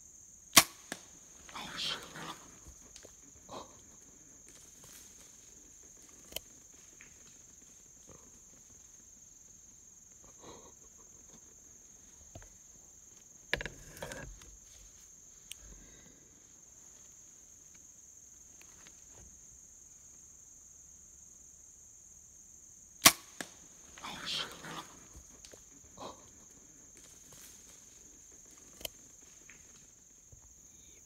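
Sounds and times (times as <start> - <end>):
insects droning: 0.0 - 31.0
sharp crack: 0.5 - 1.2, 23.0 - 23.6.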